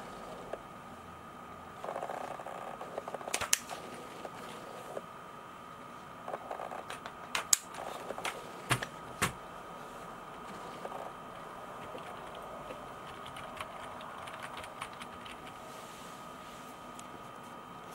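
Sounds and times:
keyboard clacks: 11.8 - 15.6.

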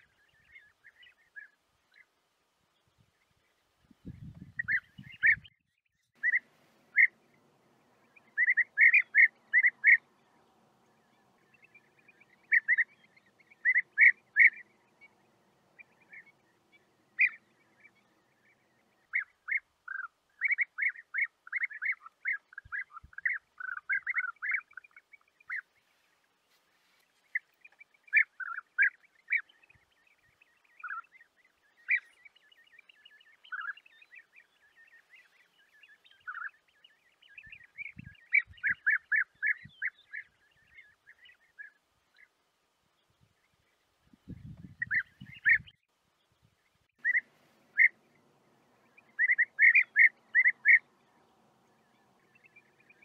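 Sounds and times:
bird calls in rolling notes: 47.0 - 51.0.

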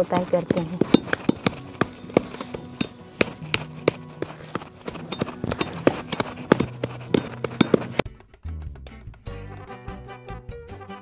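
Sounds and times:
clay pounding knocks: 0.0 - 8.3.

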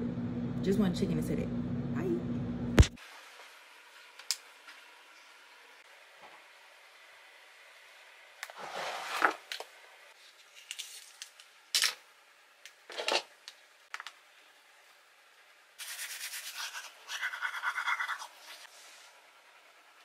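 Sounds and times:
toothbrush scrubbing teeth: 15.8 - 18.7.

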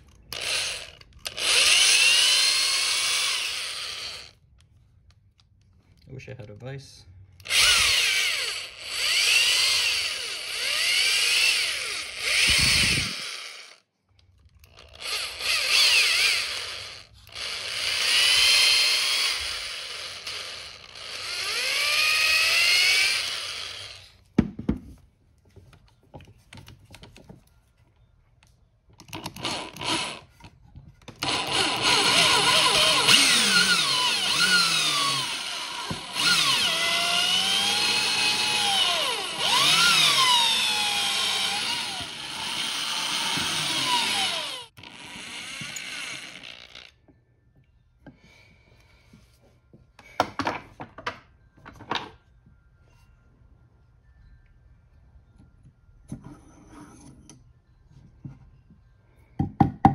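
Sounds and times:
electric drill whining: 0.1 - 4.4, 7.4 - 13.8, 14.6 - 24.2, 29.2 - 30.4, 31.2 - 47.0.

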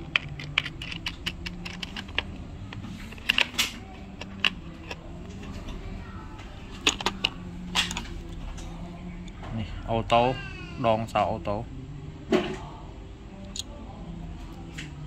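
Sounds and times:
metal tools clinking: 0.0 - 5.7, 6.7 - 8.3.

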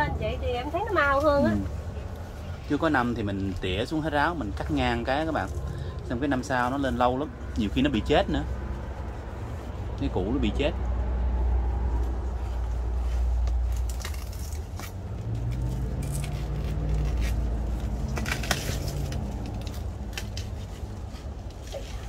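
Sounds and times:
plant stems crackling and snapping: 13.0 - 22.0.

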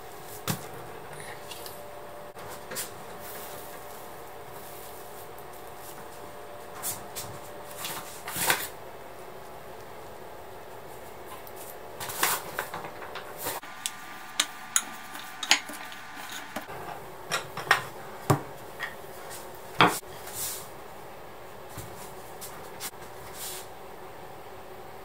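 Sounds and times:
kitchen utensils and dishes clinking: 12.0 - 19.0.

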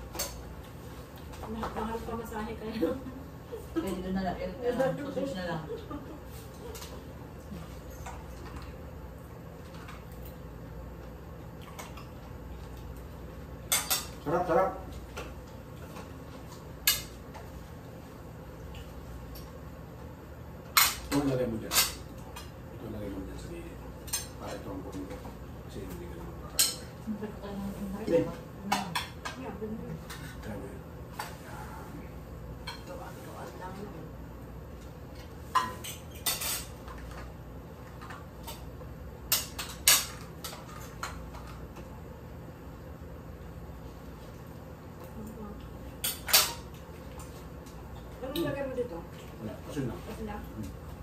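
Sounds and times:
low room hum: 0.0 - 51.0
cutlery clinking against plates: 13.7 - 14.2, 20.7 - 22.6, 26.5 - 27.0, 35.2 - 37.3, 39.3 - 41.6, 46.0 - 47.4.

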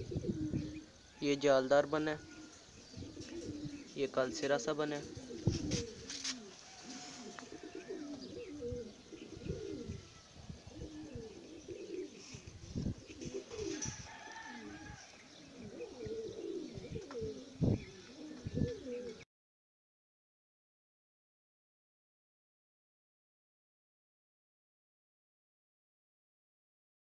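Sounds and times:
pigeons cooing: 0.0 - 19.3.

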